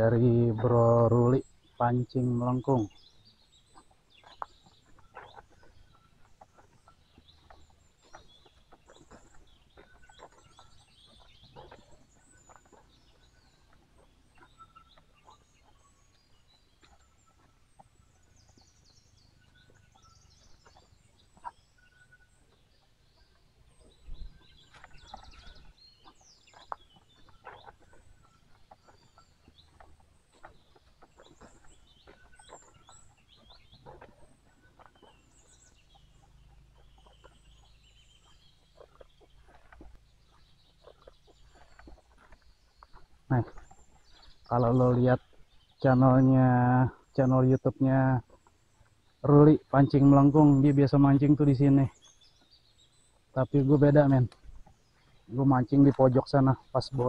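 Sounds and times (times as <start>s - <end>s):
faint bird calls and chirps: 0.0s - 57.0s
footsteps on dry leaves: 24.3s - 44.6s.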